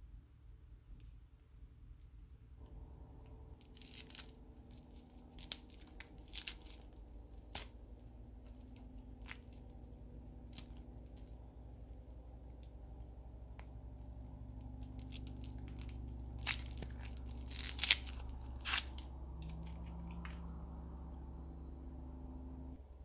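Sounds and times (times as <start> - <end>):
plastic wrapper crinkling and tearing: 3.6 - 7.8, 8.4 - 11.4, 14.8 - 20.4.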